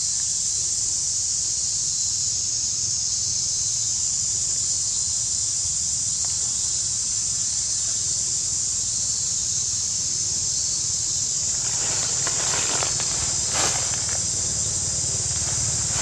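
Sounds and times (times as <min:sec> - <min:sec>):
high-pitched insect drone: 0:00.1 - 0:16.0
faint rustling crackles: 0:11.4 - 0:16.0.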